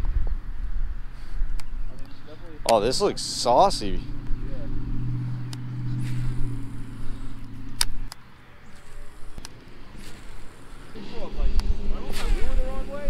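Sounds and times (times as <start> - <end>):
wind rumble on microphone: 0.0 - 1.9, 9.7 - 13.0
low engine-like hum: 1.0 - 13.0
sharp clicks: 5.4 - 11.0.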